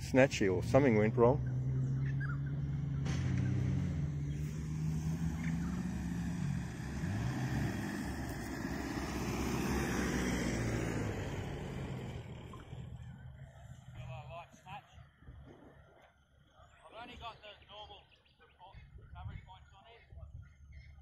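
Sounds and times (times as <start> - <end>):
vehicle engine running: 0.0 - 17.4.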